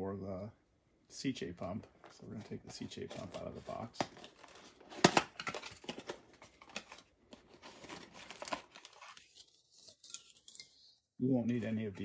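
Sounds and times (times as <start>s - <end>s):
cardboard rustling and scraping: 2.0s - 10.0s.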